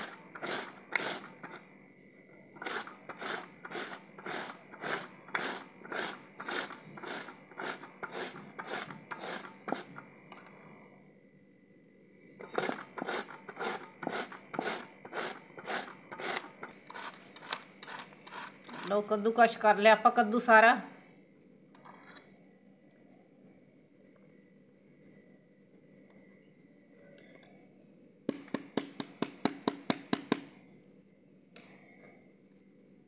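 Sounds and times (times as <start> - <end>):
gourd grated on metal grater: 0.0 - 1.6, 2.6 - 10.0, 12.4 - 19.1.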